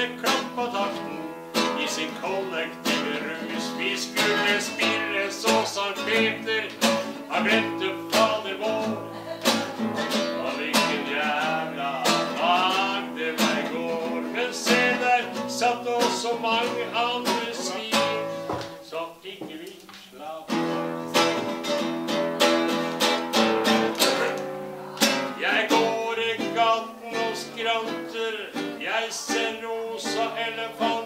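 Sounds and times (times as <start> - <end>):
nylon-string guitar strumming: 0.0 - 18.9, 20.4 - 31.0
man singing blues: 0.0 - 31.0.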